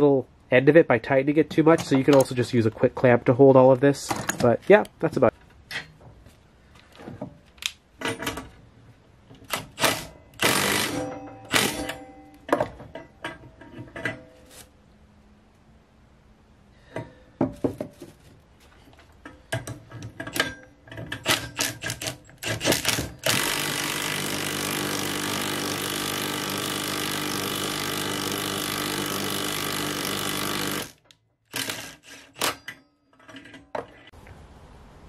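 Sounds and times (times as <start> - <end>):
cordless drill running: 9.8 - 11.0, 22.8 - 31.0, 31.6 - 32.4
metal clicks and clanks: 19.1 - 23.4, 31.0 - 34.1.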